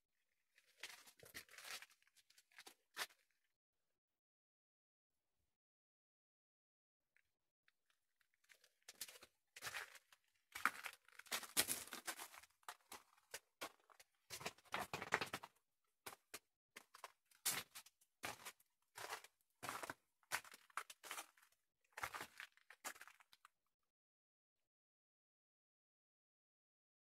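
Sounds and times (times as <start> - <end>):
footsteps crunching on gritty ground: 10.6 - 15.5, 17.5 - 21.4, 22.0 - 23.2.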